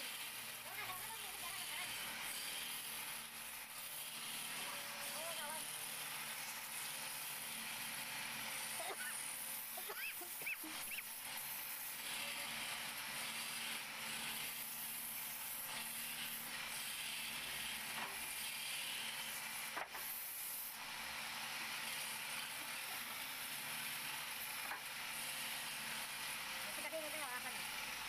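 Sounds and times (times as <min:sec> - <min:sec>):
hiss of wood shavings: 0:00.0 - 0:07.4, 0:08.5 - 0:28.0.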